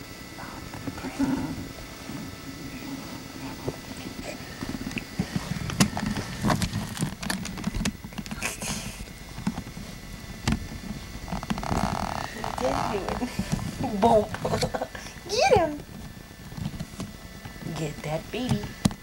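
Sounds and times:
camcorder handling noise: 5.7 - 8.4.

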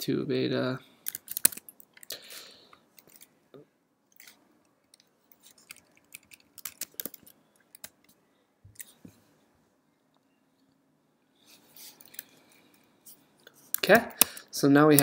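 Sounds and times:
computer keyboard typing: 5.6 - 8.0.

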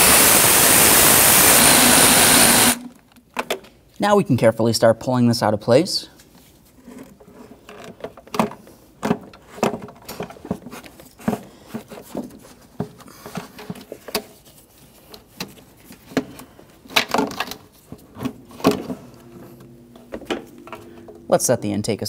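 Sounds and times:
plastic part clicking and rattling: 15.1 - 18.8.

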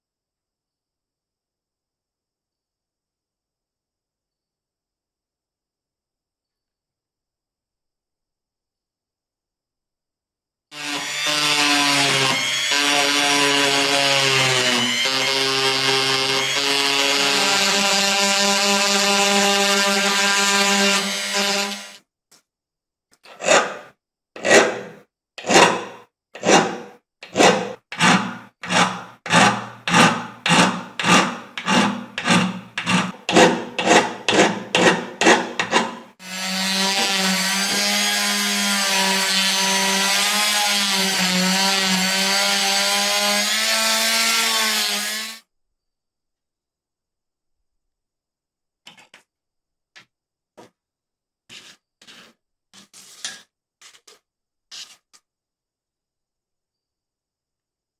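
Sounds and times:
metal hand file scraping: 23.3 - 38.1, 51.5 - 55.2
rotary tool running: 28.0 - 34.6.

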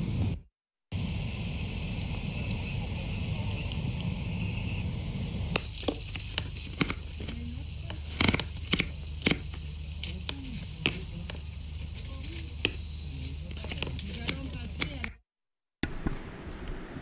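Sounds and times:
low steady hum: 1.0 - 15.0
plastic bottles clicking and knocking: 5.6 - 11.4.

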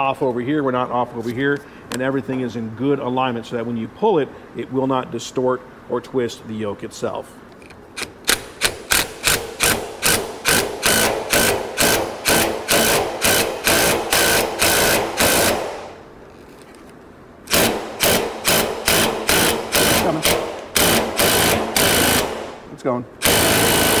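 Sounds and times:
impact wrench bursts: 8.0 - 16.0, 17.5 - 24.0.

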